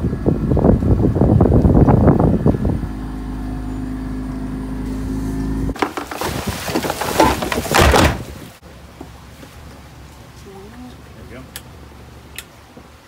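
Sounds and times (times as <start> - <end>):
wind buffeting microphone: 0.0 - 4.2
boat engine humming: 0.0 - 7.5.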